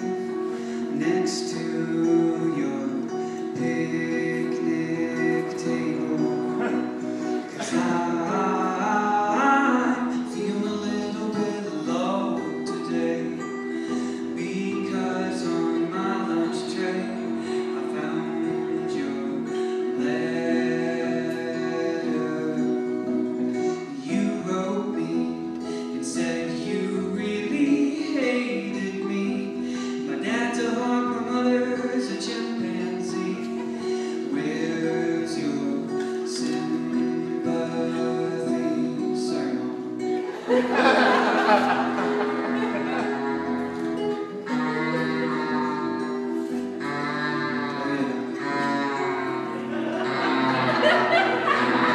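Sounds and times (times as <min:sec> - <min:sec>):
guitar: 0:00.0 - 0:51.9
person singing: 0:00.0 - 0:51.9
sustained instrumental chords: 0:40.0 - 0:51.9.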